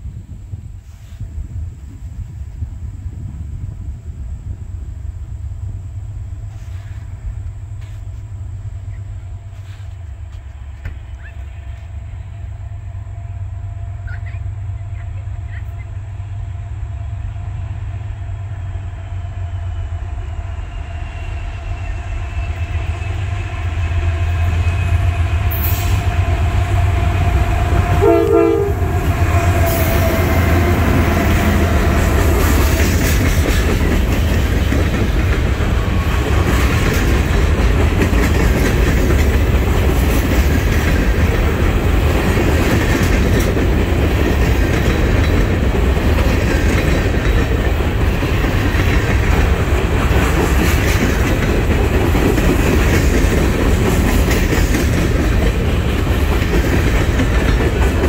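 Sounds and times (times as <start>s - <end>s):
freight cars rumbling: 2.4s - 58.0s
diesel locomotive engines drumming: 2.8s - 58.0s
train horn note: 21.0s - 32.6s
wheels clacking over rail joints: 27.6s - 58.0s.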